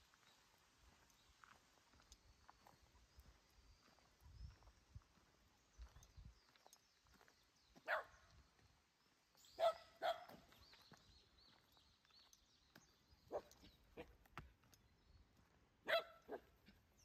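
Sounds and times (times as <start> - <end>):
dog barking: 7.8 - 8.2, 9.6 - 10.4, 13.3 - 14.1, 15.8 - 16.6.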